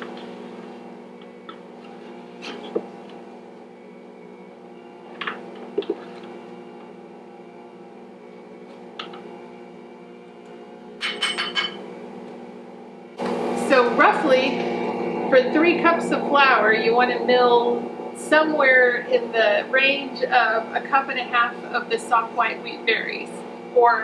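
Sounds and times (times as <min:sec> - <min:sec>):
metal cup clinking: 0:11.0 - 0:11.8
stand mixer motor humming: 0:12.0 - 0:23.8.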